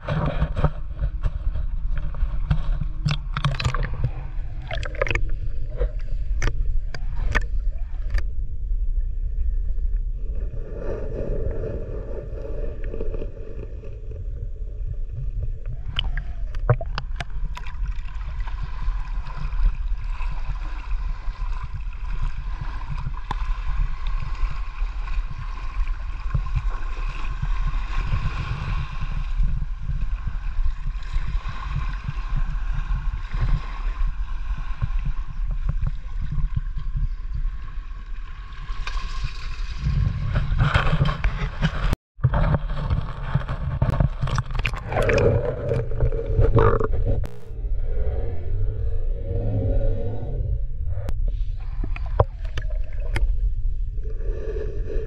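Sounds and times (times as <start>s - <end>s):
muffled underwater rumble: 0.0s - 55.0s
faint hum: 44.6s - 55.0s.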